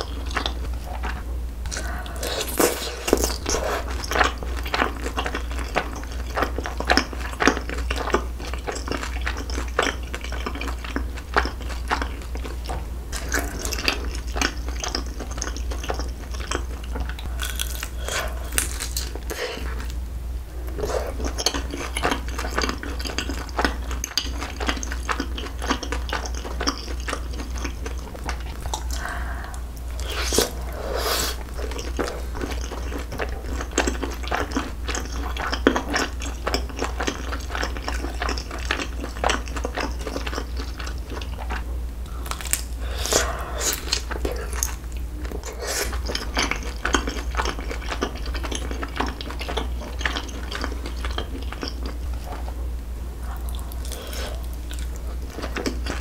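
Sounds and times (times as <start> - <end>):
wet sticky chewing: 0.0 - 20.0, 20.7 - 52.5, 53.2 - 56.0
low hum: 16.8 - 23.0, 27.9 - 33.7.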